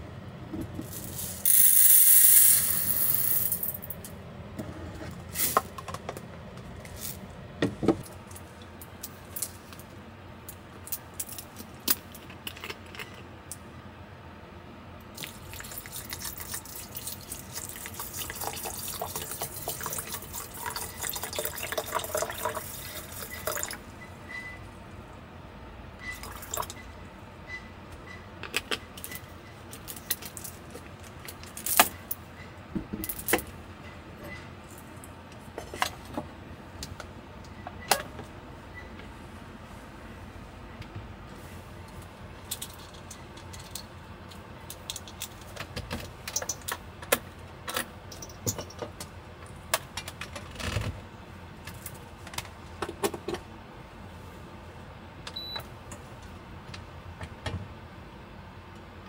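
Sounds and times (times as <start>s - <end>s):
clinks and knocks of small objects: 0.8s - 4.1s
water running: 15.2s - 23.8s.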